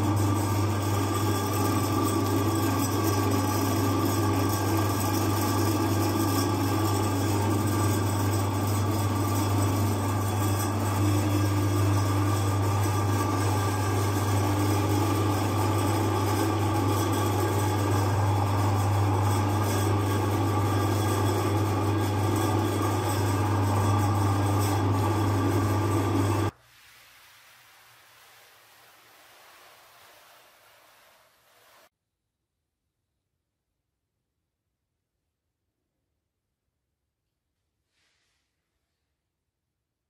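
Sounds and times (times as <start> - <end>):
electric meat grinder humming: 0.0 - 26.5.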